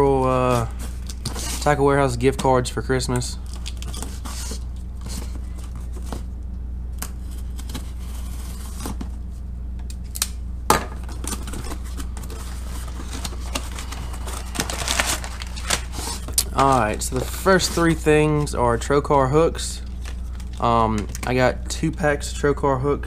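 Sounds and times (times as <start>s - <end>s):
steady low hum: 0.0s - 23.0s
cardboard flaps rustling: 11.0s - 18.6s.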